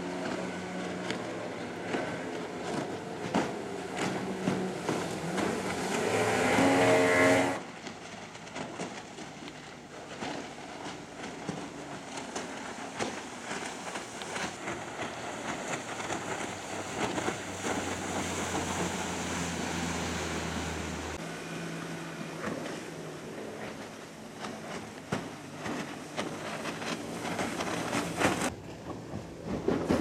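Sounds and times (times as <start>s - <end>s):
boat wake splashing: 0.0s - 30.0s
low engine drone: 0.0s - 30.0s
outboard motor boats speeding past: 0.0s - 30.0s.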